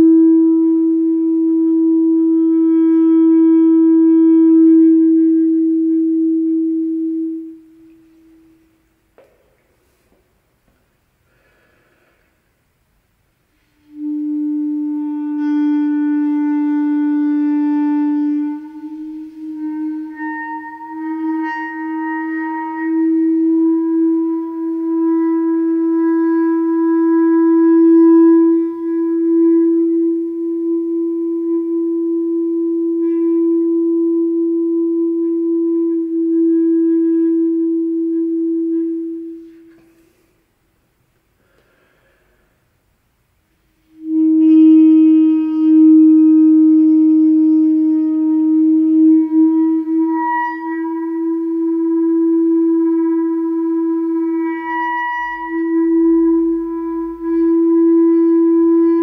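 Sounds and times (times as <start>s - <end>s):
clarinet holding low note: 0.0s - 9.3s, 13.6s - 40.3s, 43.8s - 59.0s.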